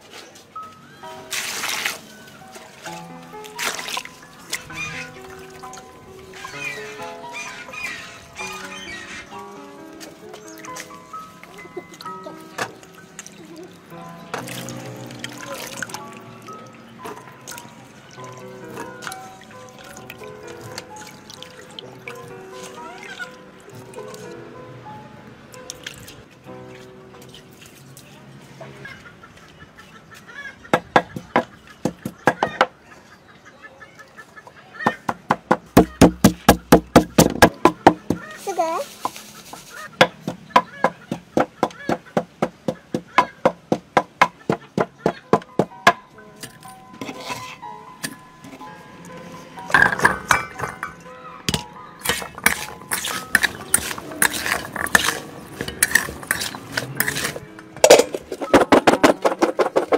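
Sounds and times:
wooden pestle pounding in mortar: 34.9 - 38.4, 40.0 - 46.0, 52.0 - 57.4
berries clinking in a steel bowl: 46.4 - 48.6, 49.7 - 59.2.

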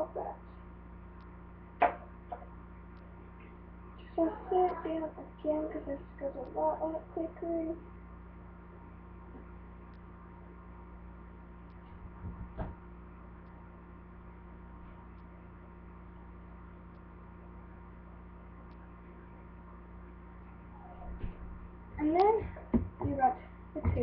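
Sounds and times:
low electrical hum: 0.0 - 24.0
muffled bump: 12.1 - 12.8, 22.3 - 23.2.

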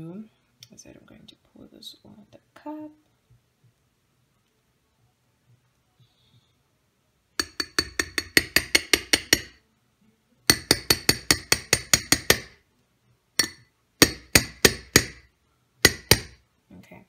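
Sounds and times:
metal strainer knocking on bowl: 7.4 - 9.6, 10.5 - 12.5, 13.4 - 15.2, 15.9 - 16.4.

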